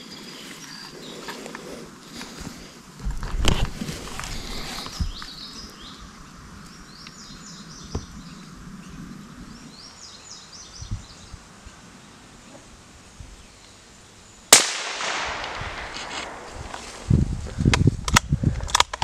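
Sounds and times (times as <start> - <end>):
songbird singing: 0.0 - 3.0, 3.8 - 18.5
rustling handling noise: 0.6 - 5.7.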